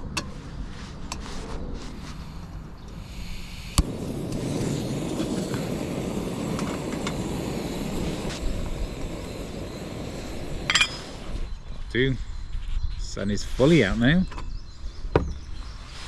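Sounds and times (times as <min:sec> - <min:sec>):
gas burner flame rushing: 0:02.9 - 0:11.6.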